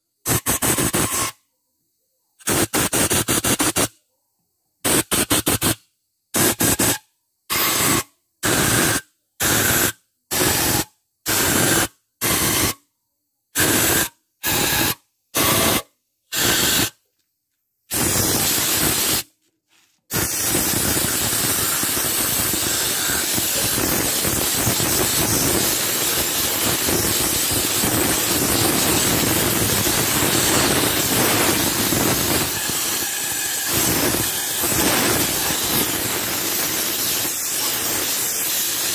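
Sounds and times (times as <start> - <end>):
pressure washer jet hissing: 13.6 - 16.9, 17.9 - 19.3, 20.1 - 38.9.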